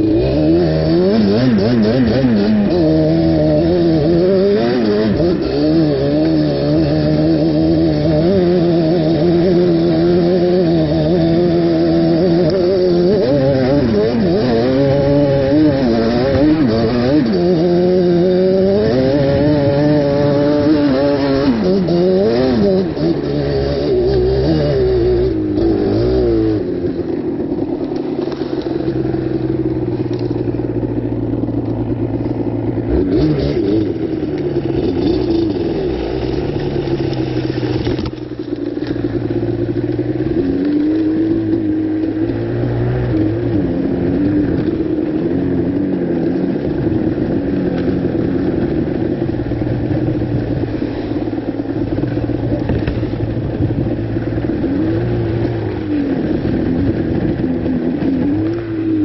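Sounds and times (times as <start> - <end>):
quad bike engine revving: 0.0 - 59.0.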